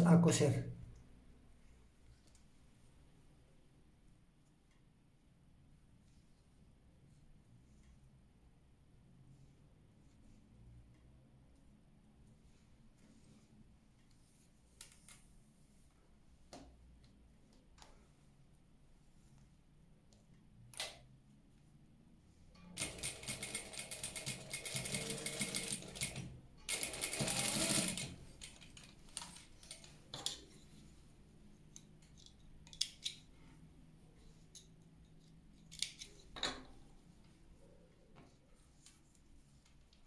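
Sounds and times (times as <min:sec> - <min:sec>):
sewing machine running: 0:22.8 - 0:28.6.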